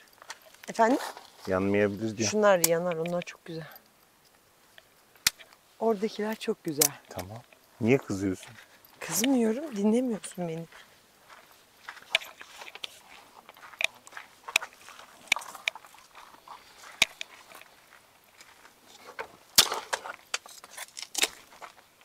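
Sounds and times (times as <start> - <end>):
objects being handled: 11.9 - 17.8, 18.4 - 21.8.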